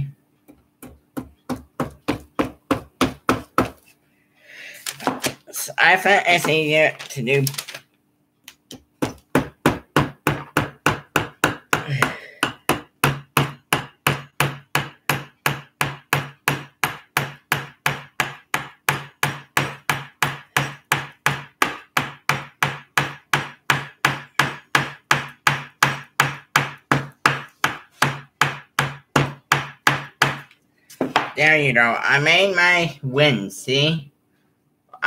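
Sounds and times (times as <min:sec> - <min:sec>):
hammer tapping nail into wood: 0:08.7 - 0:30.5.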